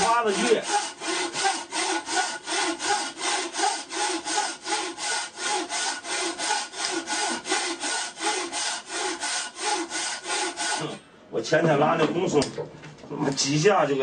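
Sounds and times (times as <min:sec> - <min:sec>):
frame saw sawing hardwood: 0:00.0 - 0:11.0.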